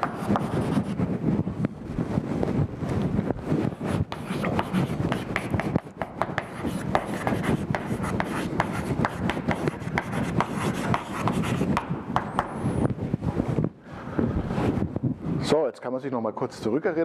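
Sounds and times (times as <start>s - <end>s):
chalk scratching on a blackboard: 0.0s - 1.0s, 3.7s - 12.6s.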